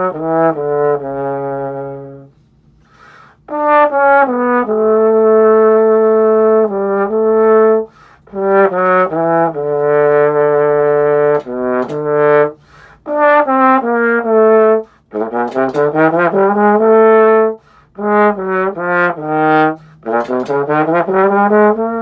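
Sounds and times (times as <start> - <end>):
trombone playing: 0.0 - 2.4, 3.5 - 22.0
short breaths: 2.4 - 3.5, 7.9 - 8.3, 12.6 - 13.0, 17.6 - 18.0.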